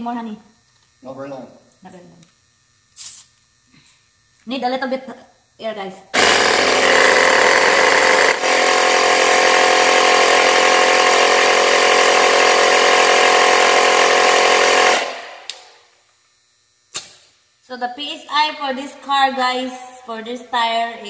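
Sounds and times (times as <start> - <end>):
air compressor running: 2.8 - 4.3, 6.1 - 16.1.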